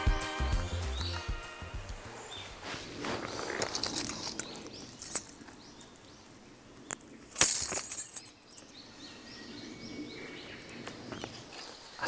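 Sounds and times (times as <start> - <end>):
short rustle: 1.9 - 5.5.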